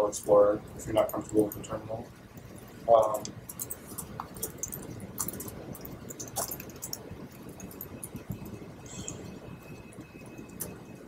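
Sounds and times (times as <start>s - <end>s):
low room noise: 0.0s - 11.0s
laptop keyboard typing: 2.4s - 11.0s.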